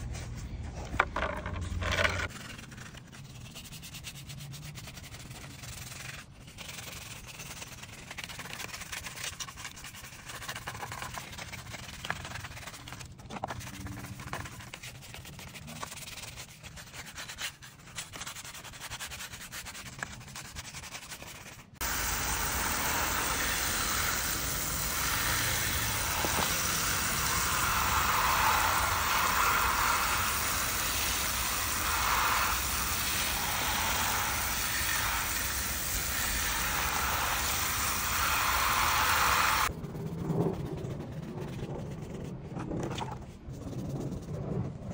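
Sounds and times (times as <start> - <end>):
brush scrubbing wet metal: 2.1 - 39.9
water jet spraying: 21.8 - 39.7.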